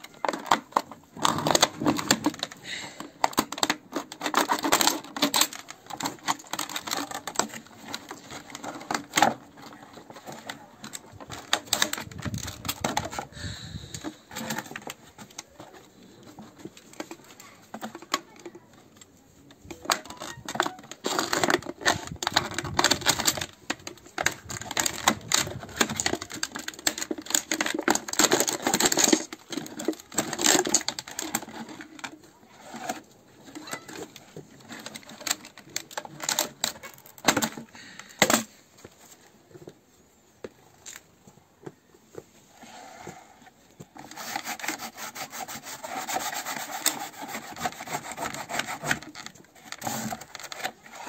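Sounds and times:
plastic bottle crackling and clicking: 0.0 - 39.8, 40.4 - 42.3, 43.7 - 51.0.

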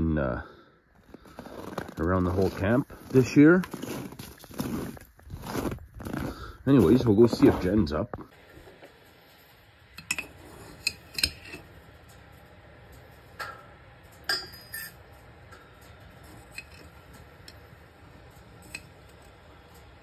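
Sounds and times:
ringing clatter: 10.0 - 19.9.

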